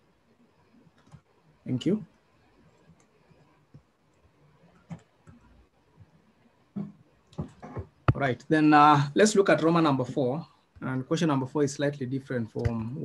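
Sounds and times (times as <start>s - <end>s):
faint clicks and taps: 0.8s - 1.4s, 2.5s - 8.3s, 12.6s - 13.0s.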